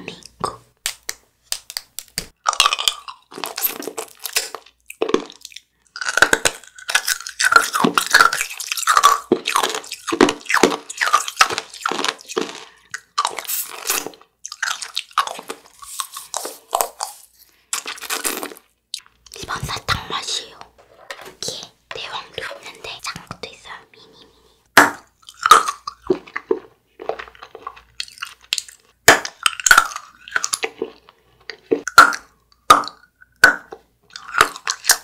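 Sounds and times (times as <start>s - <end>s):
rock candy crunching: 1.5s - 19.5s, 24.8s - 31.2s, 31.8s - 35.0s.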